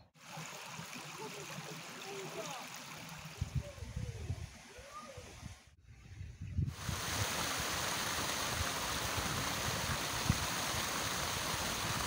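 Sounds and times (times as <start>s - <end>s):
stream splashing down stone cascade: 0.1s - 3.9s, 6.8s - 12.0s.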